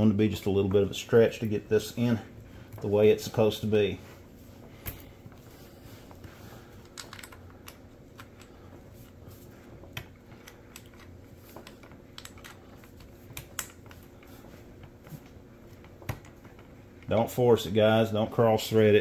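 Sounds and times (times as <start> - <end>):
small parts clicking: 6.8 - 8.5, 10.4 - 12.6.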